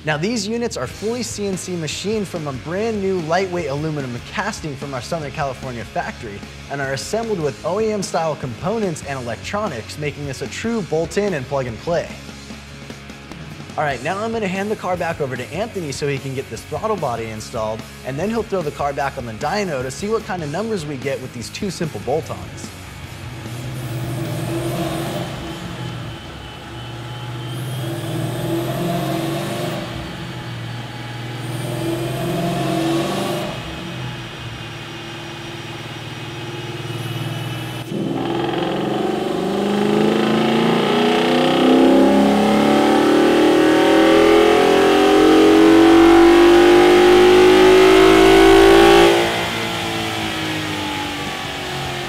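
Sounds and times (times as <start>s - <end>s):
car engine idling and revving: 0.0s - 52.0s
car engine full-throttle pull: 22.2s - 52.0s.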